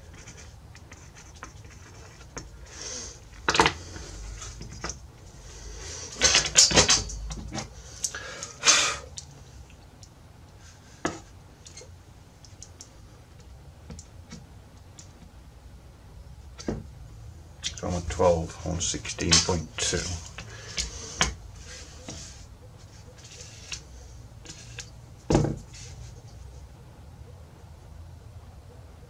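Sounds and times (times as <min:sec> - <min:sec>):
wood scraping: 0:17.7 - 0:26.5.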